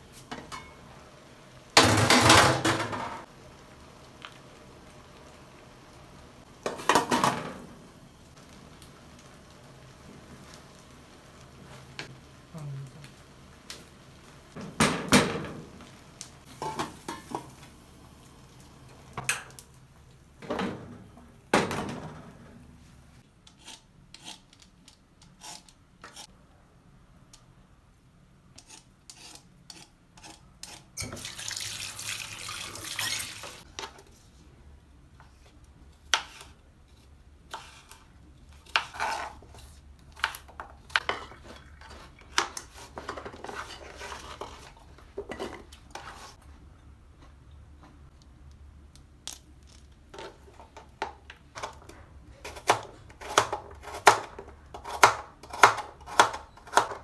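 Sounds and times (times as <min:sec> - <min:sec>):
wooden spoon scraping a pot: 0:28.6 - 0:31.0, 0:38.6 - 0:39.9, 0:40.9 - 0:46.4.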